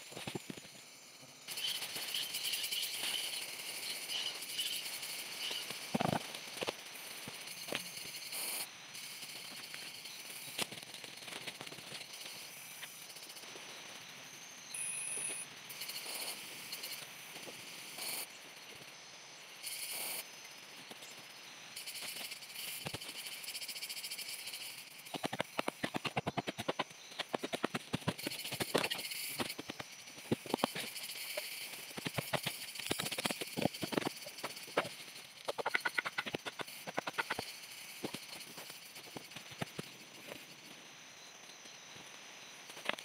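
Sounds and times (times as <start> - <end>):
frogs calling: 1.5 - 10.5, 24.6 - 38.7.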